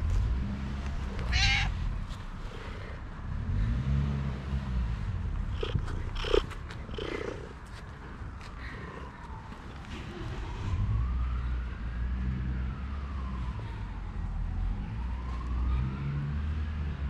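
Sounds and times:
cat meowing: 0:01.2 - 0:01.8
cat purring: 0:05.4 - 0:08.2.

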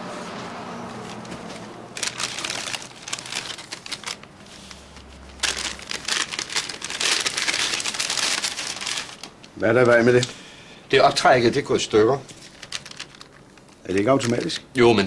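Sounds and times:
tissue paper crinkling: 0:01.1 - 0:10.2, 0:12.3 - 0:14.6.

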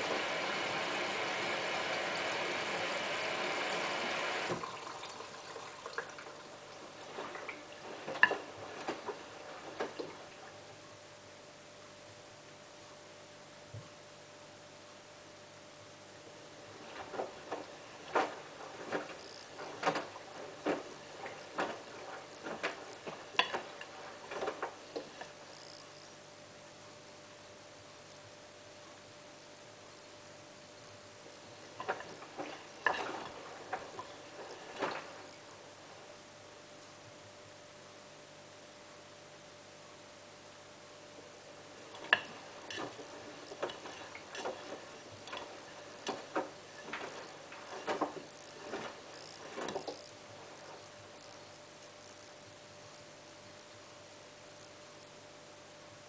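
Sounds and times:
wet laundry splashing in drum: 0:00.0 - 0:10.7, 0:16.5 - 0:25.4, 0:31.5 - 0:36.2, 0:41.3 - 0:51.2
faint steady hum: 0:00.0 - 0:56.0.

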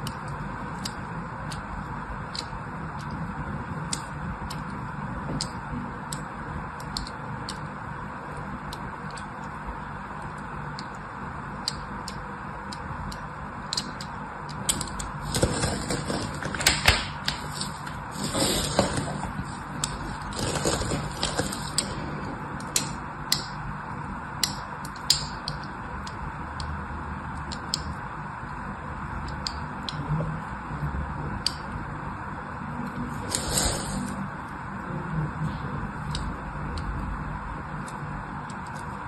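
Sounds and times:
knife scratching soap: 0:15.2 - 0:16.7, 0:17.3 - 0:21.9.

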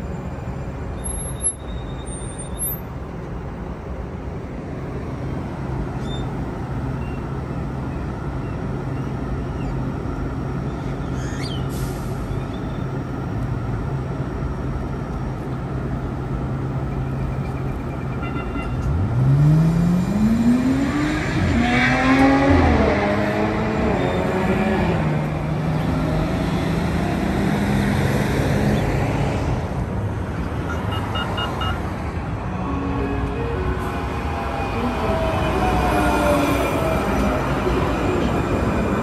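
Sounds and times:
electric train humming: 0:32.3 - 0:39.0.

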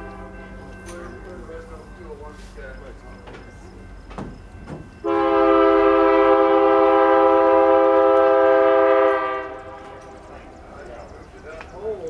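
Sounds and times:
locomotive air horn blast: 0:05.0 - 0:10.2.

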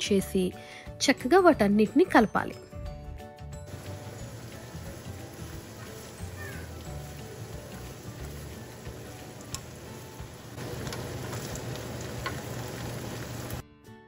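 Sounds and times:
vegetables sizzling in a frying pan: 0:03.7 - 0:13.6.

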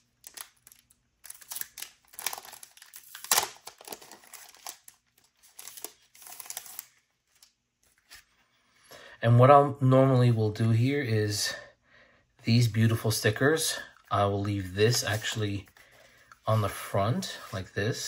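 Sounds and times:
plastic wrapping crackling: 0:00.0 - 0:07.6.

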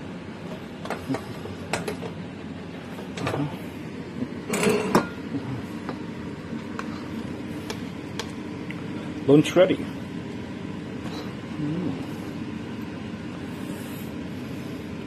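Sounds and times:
steady low hum: 0:00.0 - 0:15.0
utensils rattling against dishes: 0:04.5 - 0:05.1
cookware knocks and clatters: 0:04.5 - 0:05.2.

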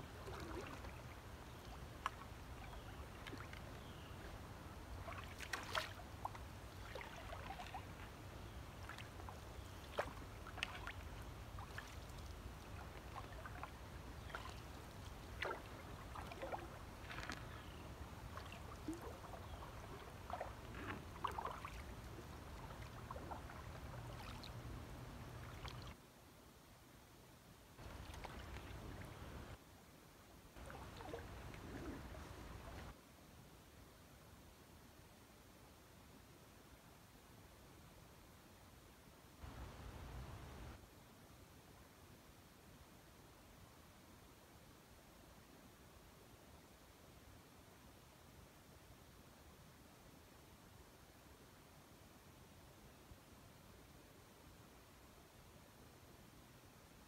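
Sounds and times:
paddle splashes and drips: 0:00.0 - 0:26.0, 0:27.8 - 0:29.6, 0:30.6 - 0:33.0.

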